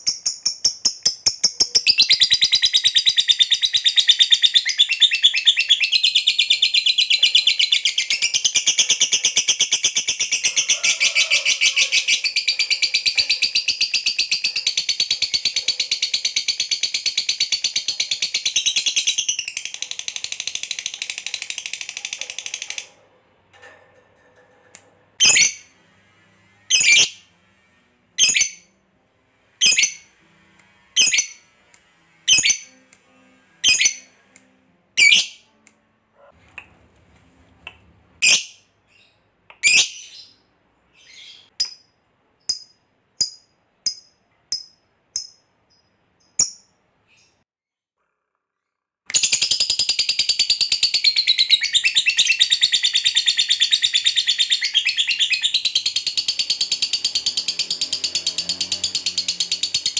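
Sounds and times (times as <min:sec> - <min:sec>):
lovebird high-pitched trill: 0:26.7 - 0:27.2, 0:31.0 - 0:31.4, 0:32.3 - 0:32.8, 0:33.6 - 0:34.1, 0:49.2 - 0:59.9.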